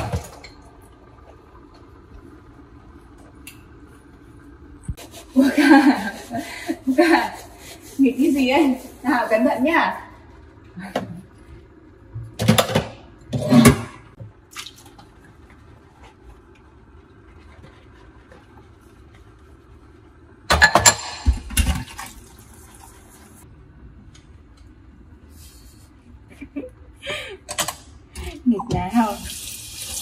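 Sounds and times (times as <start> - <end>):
low steady hum: 0.0 - 30.0
liquid splashing and dripping: 14.5 - 15.2.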